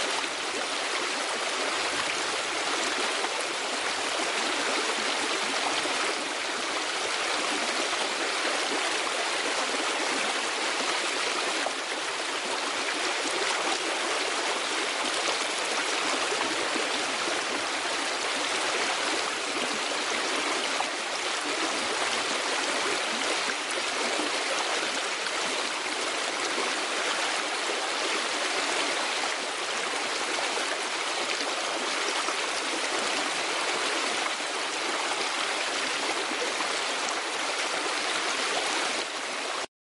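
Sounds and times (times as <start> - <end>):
running water rushing: 0.0 - 39.7.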